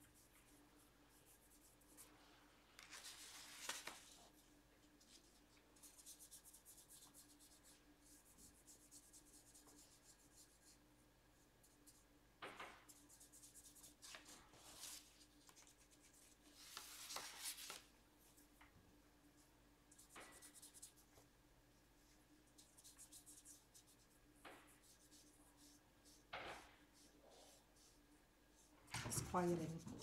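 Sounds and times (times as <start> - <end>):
paper sheet rustling: 2.8 - 4.2, 16.5 - 17.9
paintbrush rubbing on paper: 5.0 - 10.8, 19.9 - 21.2, 22.0 - 30.0.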